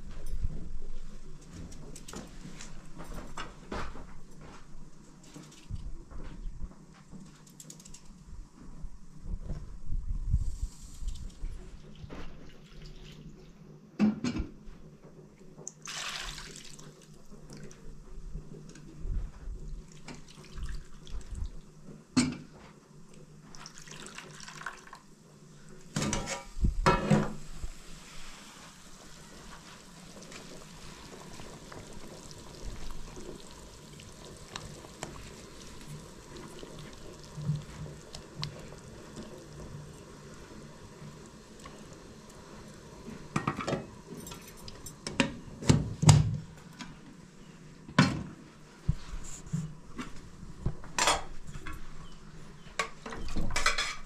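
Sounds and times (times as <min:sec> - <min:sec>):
simmering pot hissing: 0:23.4 - 0:45.7.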